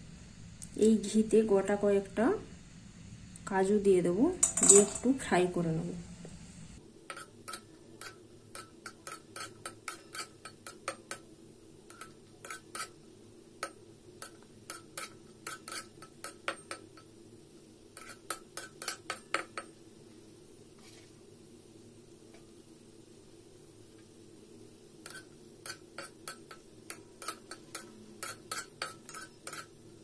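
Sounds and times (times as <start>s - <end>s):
metal spatula scraping a pan: 7.1s - 11.3s, 11.9s - 13.0s, 13.6s - 17.1s, 17.9s - 19.7s, 25.0s - 29.8s.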